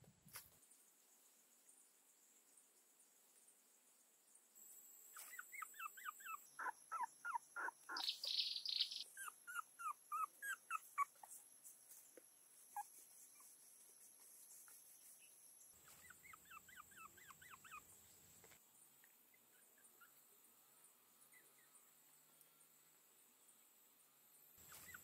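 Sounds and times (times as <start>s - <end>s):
puppies whimpering: 5.2s - 11.4s, 15.9s - 17.8s, 24.6s - 25.0s.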